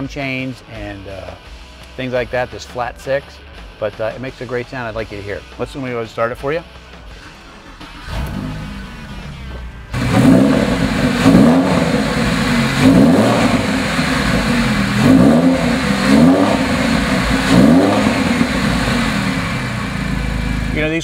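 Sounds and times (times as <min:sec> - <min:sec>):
car engine idling and revving: 0:06.6 - 0:21.0.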